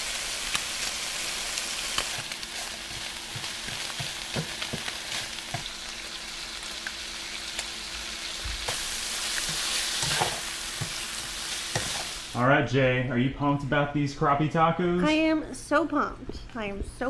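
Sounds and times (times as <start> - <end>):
fish sizzling in a skillet: 0.0 - 12.4
spatula scraping a pan: 8.7 - 12.3.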